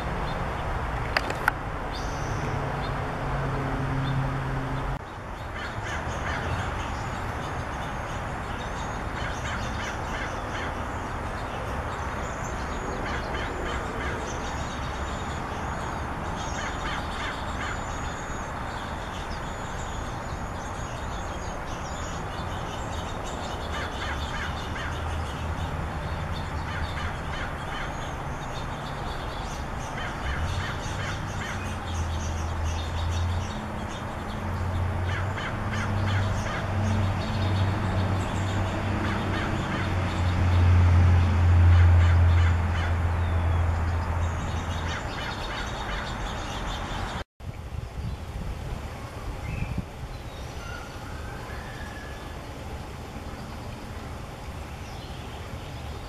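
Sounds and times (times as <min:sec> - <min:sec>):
harsh bird calls: 0:04.9 - 0:40.6, 0:41.7 - 0:47.2.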